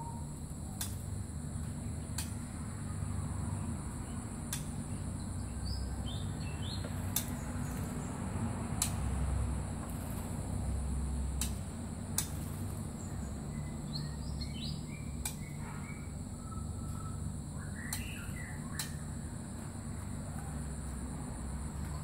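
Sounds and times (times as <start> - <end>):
bird chirps and calls: 13.0 - 19.2.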